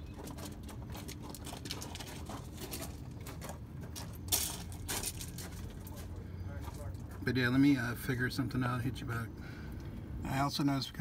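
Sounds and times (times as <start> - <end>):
scraping rustles: 0.0 - 7.1
steady low hum: 0.0 - 11.0.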